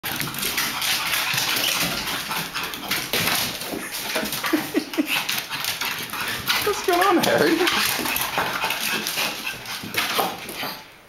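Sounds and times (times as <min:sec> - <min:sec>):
dog paws pattering on wooden floor: 0:00.0 - 0:11.0.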